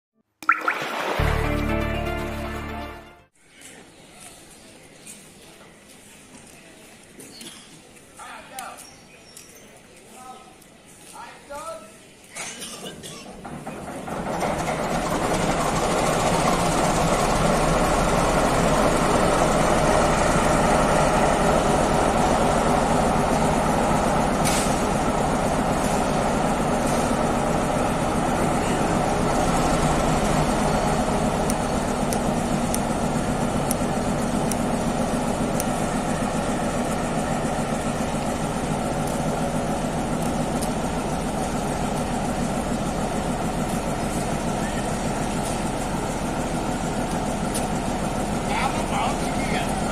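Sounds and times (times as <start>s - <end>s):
diesel locomotive engine running: 13.3s - 49.9s.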